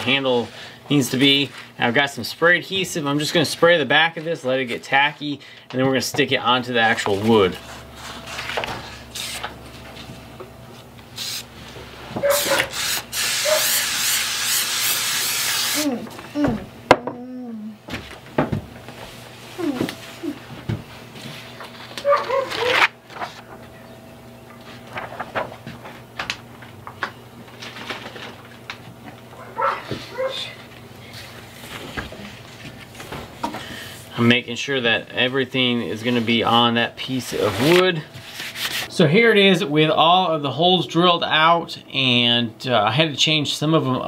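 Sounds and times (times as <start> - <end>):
paper rustling: 6.9 - 10.2, 21.2 - 23.7, 24.6 - 28.9, 37.2 - 38.9
aerosol spray hiss: 11.2 - 11.5, 12.3 - 15.9.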